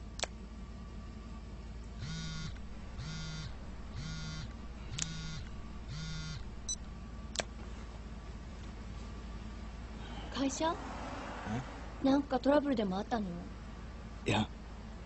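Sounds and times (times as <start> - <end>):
sharp clicks: 0.2 - 0.4, 4.5 - 5.6, 6.7 - 7.5
phone buzzing: 2.0 - 6.5.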